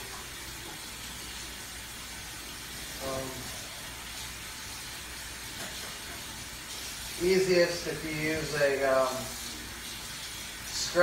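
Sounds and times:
tap water running into sink: 0.0 - 11.0.

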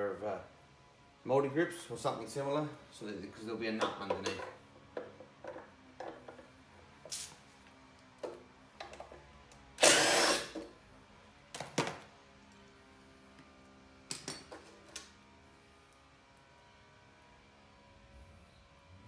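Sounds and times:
cordless drill running: 9.8 - 10.6.

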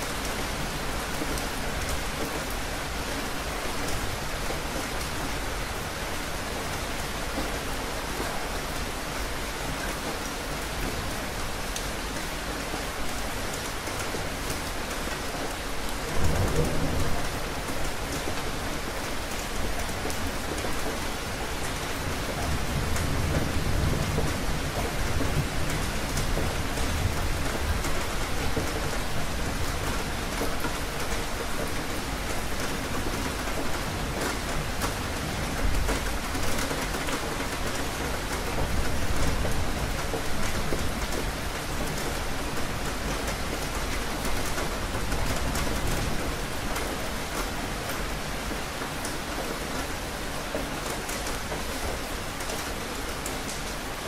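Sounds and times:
steady rain falling: 0.0 - 54.0
thunder rumbling: 16.1 - 17.7.

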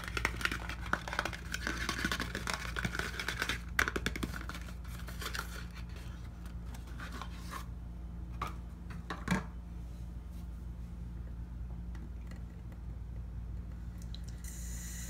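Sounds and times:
paper wrapper crinkling: 0.0 - 7.2
steady low hum: 0.0 - 15.0.

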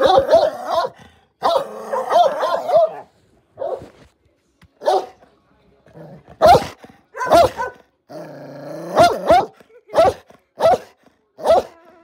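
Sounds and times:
dog barking: 0.0 - 4.0, 4.8 - 5.2, 6.4 - 7.8, 8.9 - 11.8.

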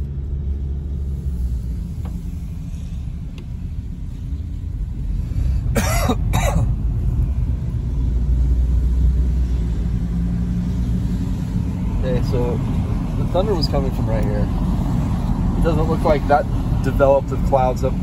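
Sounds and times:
car road and engine noise: 0.0 - 18.0
person coughing: 5.7 - 6.8.

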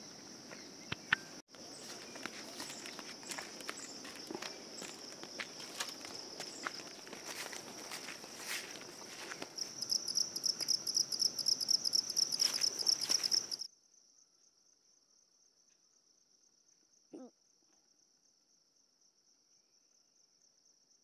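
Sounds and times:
insects trilling chorus: 0.0 - 13.7
footsteps on grass: 1.5 - 13.6.

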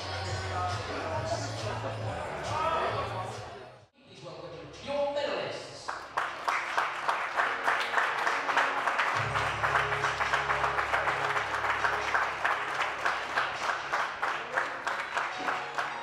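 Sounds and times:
music: 0.0 - 5.4, 6.0 - 16.0
audience clapping in rhythm: 5.8 - 16.0
low bass: 9.2 - 13.0.

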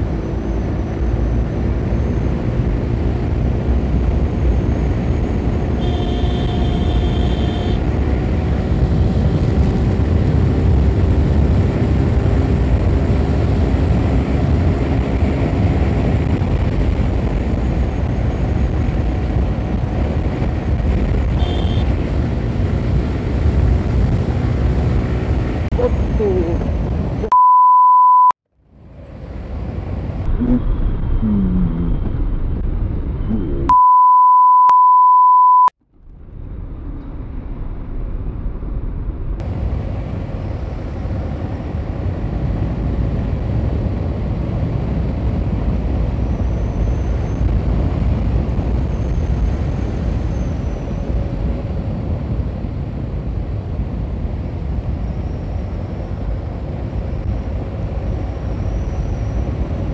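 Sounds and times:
motorcycle engine at road speed: 0.0 - 25.8, 39.4 - 59.9
wind rush on microphone: 0.0 - 27.2, 36.2 - 59.9
steady beep tone: 27.2 - 28.4, 33.7 - 35.8.

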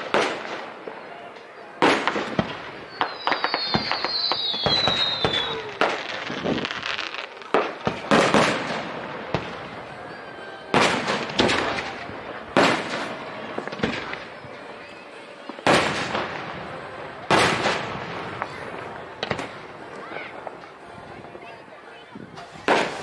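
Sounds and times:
high firework whistle: 0.0 - 20.5
fireworks bangs: 0.0 - 23.0
fireworks crackling: 0.0 - 23.0.

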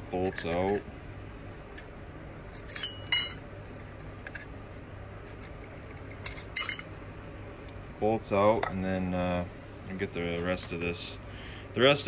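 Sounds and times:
wrench clinking on steel bolts: 2.6 - 3.4, 5.3 - 6.8.

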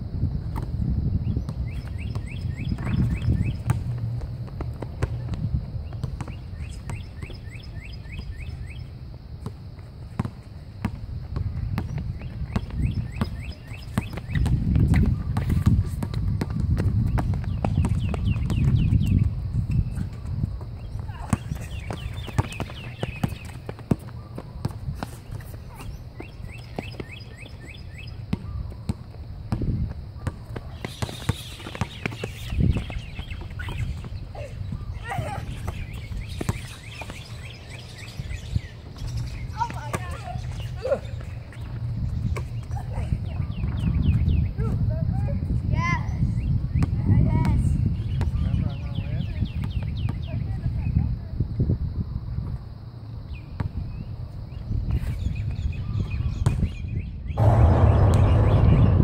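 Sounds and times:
basketball bouncing on asphalt: 0.4 - 34.3, 35.3 - 40.7, 46.7 - 48.4, 49.6 - 50.5, 56.4 - 56.7
bird chirping: 5.8 - 8.9
basketball bouncing on hard court: 10.2 - 19.4, 20.6 - 25.1
low rumble: 57.4 - 59.0.

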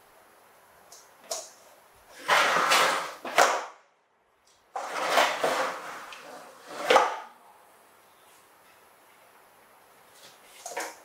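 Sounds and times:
toy truck scraping on wooden floor: 2.1 - 3.4, 4.8 - 7.1.

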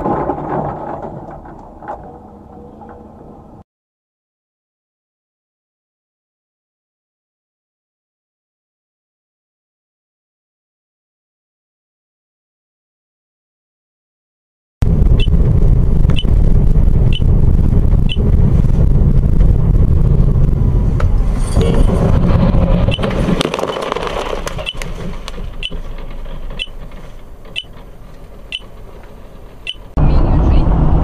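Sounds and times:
car road and engine rumble: 0.0 - 3.6, 14.8 - 31.0.

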